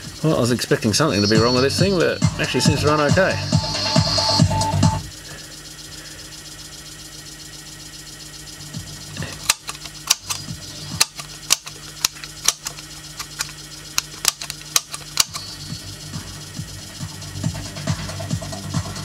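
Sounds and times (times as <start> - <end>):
amplifier hum: 0.0 - 19.0
switch clicks and pops: 9.2 - 15.5.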